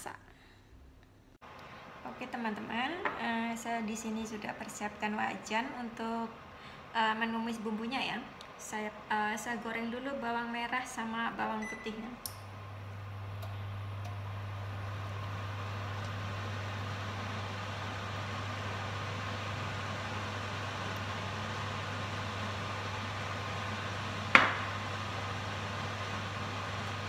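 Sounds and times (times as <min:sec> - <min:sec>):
cooling fan running: 0:01.5 - 0:27.0
induction hob humming: 0:01.5 - 0:27.0
sharp knock: 0:24.4 - 0:24.7.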